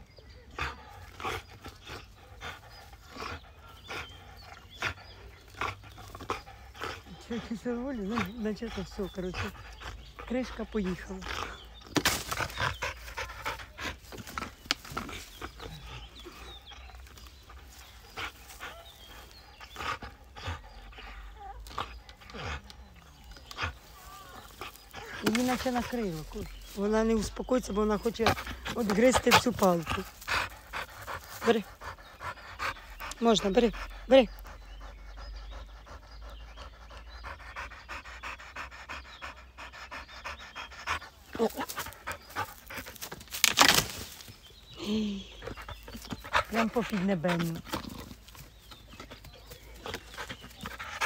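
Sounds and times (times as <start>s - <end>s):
dog panting: 0.0s - 43.3s, 44.2s - 51.0s
jaws clicking on wood: 0.9s - 44.5s, 45.4s - 51.0s
leaves rustling: 23.2s - 31.7s, 41.1s - 45.3s.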